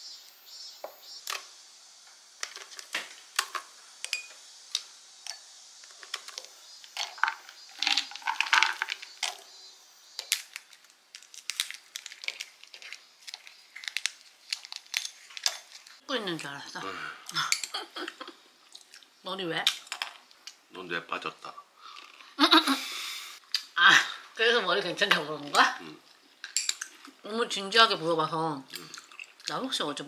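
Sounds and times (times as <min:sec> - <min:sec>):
nuts dropping into bowls: 0:02.4 - 0:09.6, 0:10.2 - 0:16.0, 0:19.6 - 0:20.4, 0:26.4 - 0:27.2.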